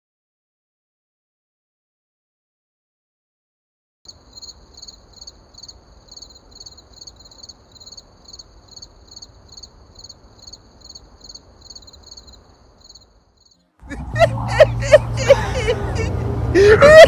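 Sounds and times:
crickets chirping: 0:04.1 - 0:15.8.

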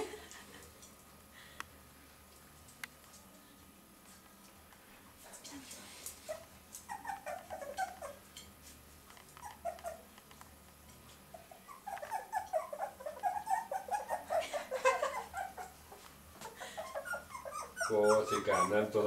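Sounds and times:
puppies whimpering and squeaking: 0:06.1 - 0:08.4, 0:09.2 - 0:10.2, 0:11.2 - 0:19.0.

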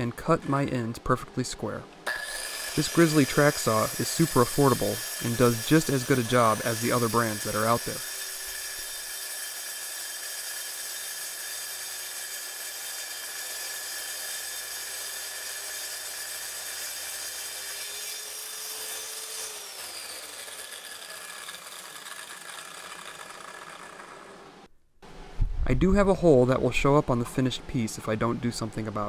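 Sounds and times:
track saw cutting wood: 0:02.0 - 0:24.7.

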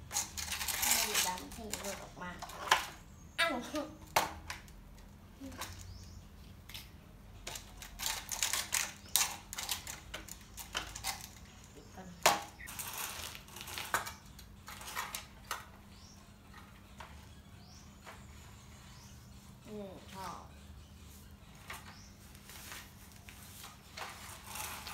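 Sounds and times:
plastic toy scraping: 0:00.0 - 0:03.0, 0:12.6 - 0:15.6, 0:22.6 - 0:24.9
plastic toys clicking and rattling: 0:00.0 - 0:03.0, 0:04.0 - 0:06.0, 0:06.7 - 0:15.8.

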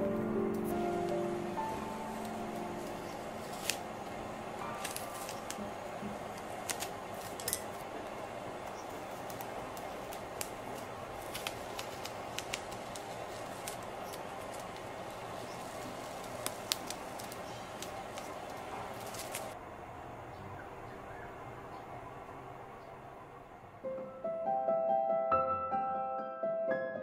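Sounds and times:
steady hiss: 0:00.0 - 0:23.9
paper pages handled: 0:00.5 - 0:19.6.

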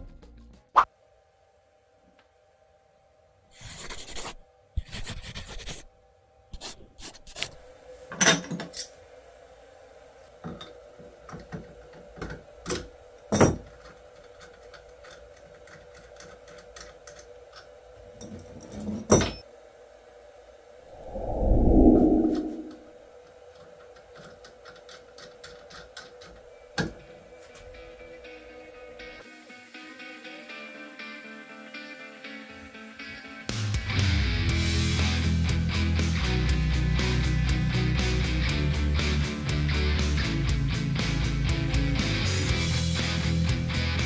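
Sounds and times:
faint steady hum: 0:07.5 - 0:29.7.

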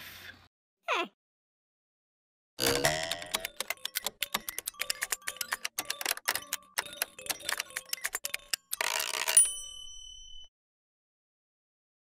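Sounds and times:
typewriter carriage return zip: 0:02.8 - 0:09.5
typewriter key clacks: 0:02.8 - 0:09.6
typewriter bell ding: 0:03.0 - 0:10.5.

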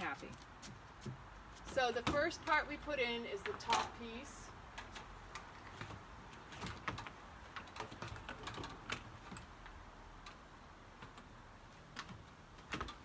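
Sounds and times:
screen door clicks and taps: 0:04.7 - 0:13.0.

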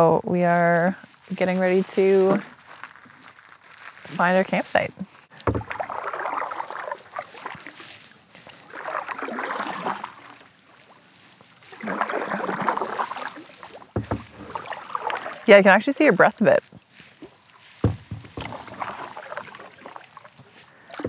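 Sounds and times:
canoe paddle swishing through water: 0:05.1 - 0:21.0
dull low knock: 0:05.5 - 0:05.8, 0:14.0 - 0:14.5, 0:17.8 - 0:18.6.

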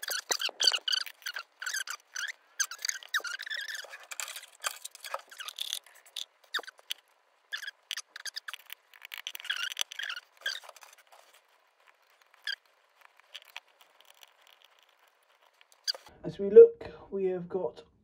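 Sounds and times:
small metal parts clicking: 0:00.0 - 0:11.1
squeaky scrapes: 0:00.0 - 0:16.1.

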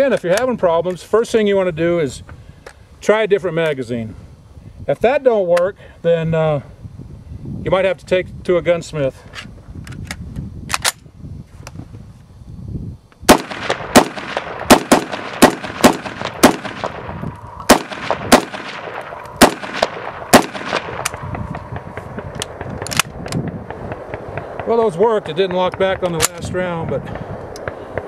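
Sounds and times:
rifle shots: 0:13.3 - 0:24.6.

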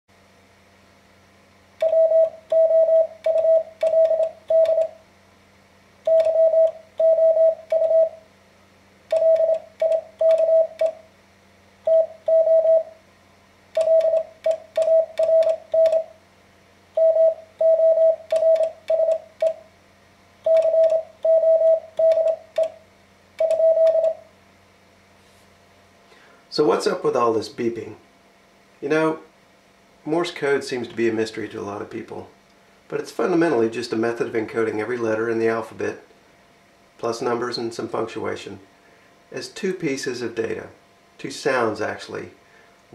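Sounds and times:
morse code beeping: 0:01.8 - 0:04.9, 0:06.1 - 0:08.2, 0:09.1 - 0:11.0, 0:11.9 - 0:12.9, 0:13.8 - 0:16.1, 0:17.0 - 0:19.6, 0:20.5 - 0:22.8, 0:23.4 - 0:24.2
telegraph key clicks: 0:18.3 - 0:19.6.

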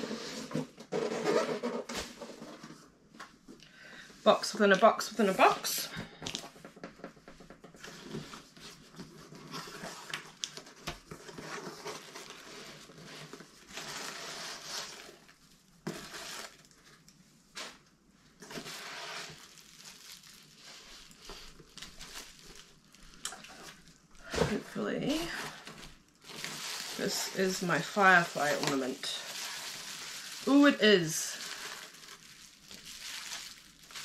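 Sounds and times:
shredded paper rustling: 0:11.3 - 0:16.8, 0:18.4 - 0:34.0.

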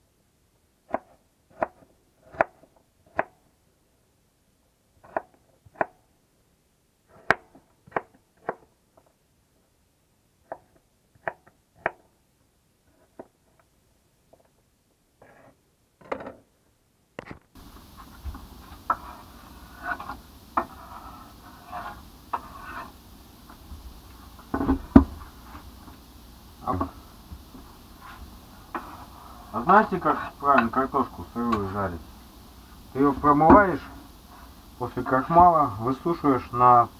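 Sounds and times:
knife chopping on wooden board: 0:00.9 - 0:03.4, 0:05.0 - 0:06.0
knife scraping board: 0:15.2 - 0:15.6, 0:17.6 - 0:26.0, 0:28.0 - 0:30.8.

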